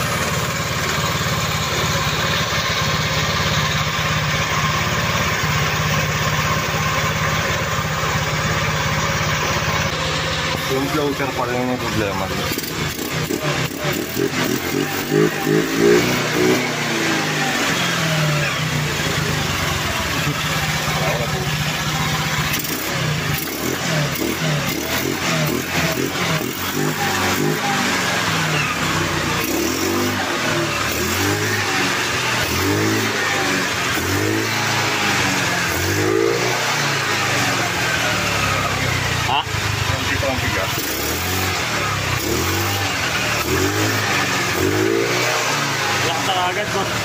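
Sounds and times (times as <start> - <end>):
scooter engine revving and idling: 0.0 - 47.0.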